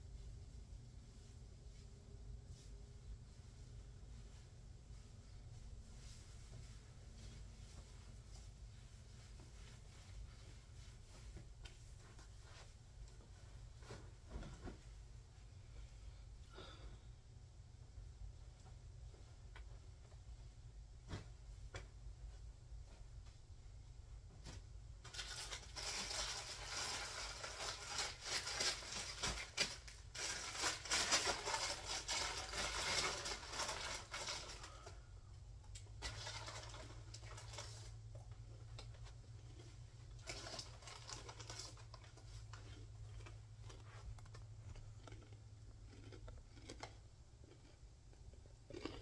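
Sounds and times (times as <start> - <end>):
plastic snack bag crackling: 25.0 - 35.0, 35.8 - 38.1, 40.1 - 44.4.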